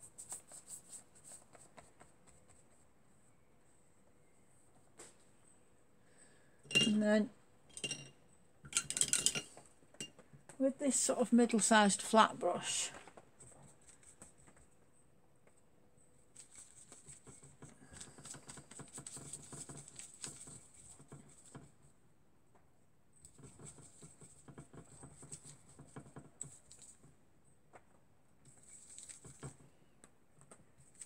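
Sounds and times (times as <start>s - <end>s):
paintbrush dabbing on palette: 0.0s - 3.0s, 16.3s - 21.9s, 23.2s - 27.2s.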